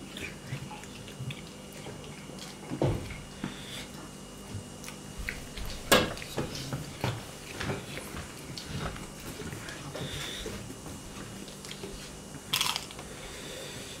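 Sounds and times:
person chewing: 0.0 - 4.0, 4.8 - 14.0.

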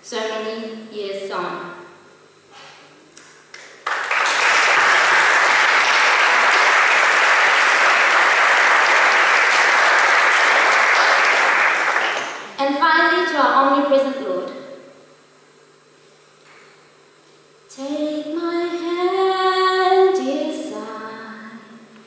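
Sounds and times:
audience applauding: 3.6 - 12.5.

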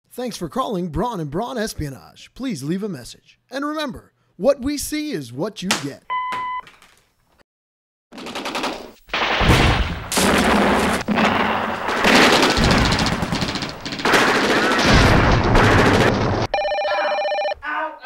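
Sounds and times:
automatic gunfire: 8.2 - 16.5.

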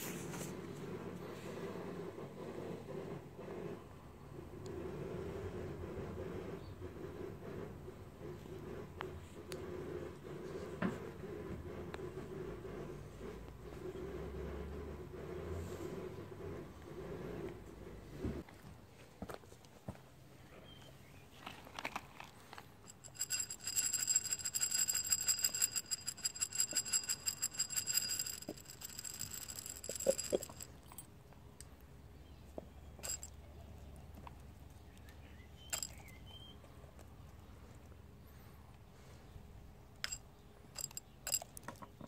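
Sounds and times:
pellets clinking in a wine glass: 22.9 - 31.0, 33.0 - 33.3, 35.7 - 36.0, 40.8 - 41.5.

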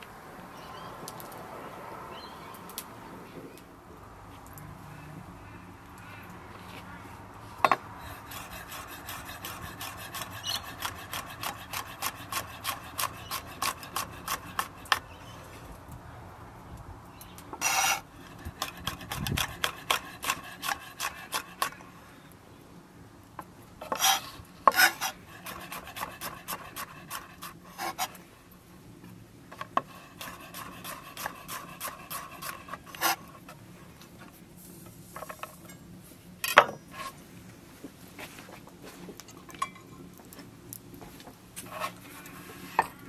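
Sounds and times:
knife scraping across board: 17.6 - 21.8, 23.8 - 28.2, 29.5 - 33.6, 36.5 - 37.2, 41.6 - 43.0.

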